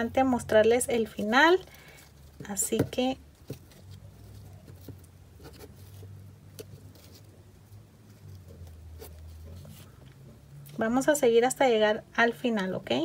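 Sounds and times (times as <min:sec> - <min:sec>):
low steady hum: 0:00.0 - 0:13.0
ribbon rustling and ticking: 0:00.5 - 0:10.9.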